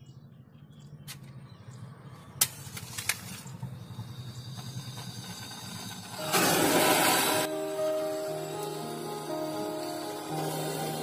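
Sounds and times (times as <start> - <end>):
flame hissing: 4.0 - 11.0.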